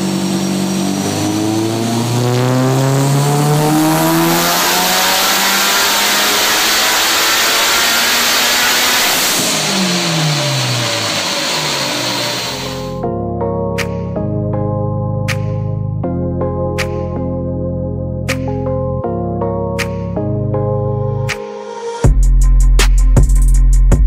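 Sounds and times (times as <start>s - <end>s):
car engine revving: 0.0s - 13.0s
turbo whine: 0.0s - 13.0s.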